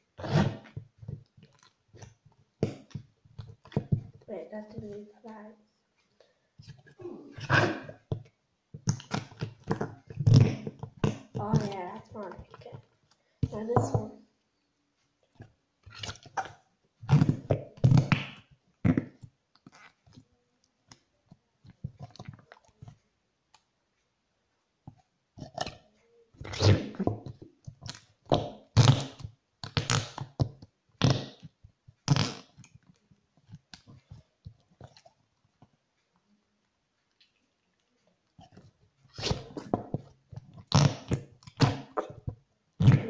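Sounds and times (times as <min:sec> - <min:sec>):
slime squelching fart noises: 0:00.2 - 0:00.8, 0:01.6 - 0:03.0, 0:06.9 - 0:08.1, 0:08.8 - 0:12.8, 0:15.8 - 0:20.0, 0:26.4 - 0:32.7, 0:38.4 - 0:43.0.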